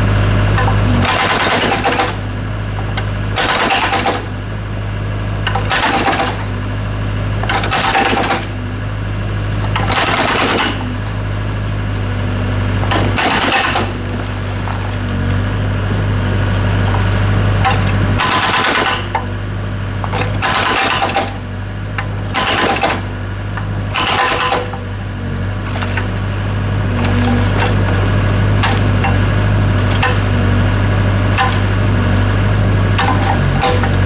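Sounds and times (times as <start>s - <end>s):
excavator engine drone: 0.0s - 34.0s
hydraulic breaker hammering concrete: 0.5s - 4.4s, 5.4s - 6.6s, 7.4s - 8.7s, 9.6s - 11.2s, 12.8s - 15.0s, 17.6s - 19.4s, 20.0s - 25.0s, 26.8s - 30.5s, 31.2s - 32.3s, 32.9s - 34.0s.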